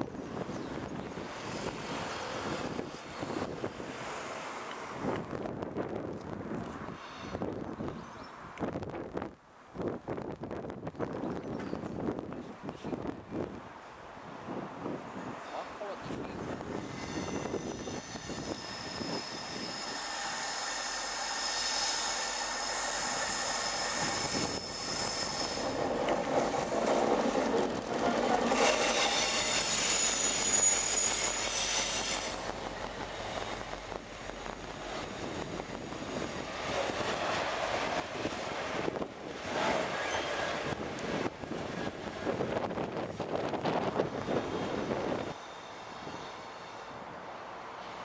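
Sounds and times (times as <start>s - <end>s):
train wheels rolling on rails: 16.4s - 48.0s
high wheel squeal: 16.8s - 26.0s, 27.7s - 32.5s, 39.7s - 40.8s.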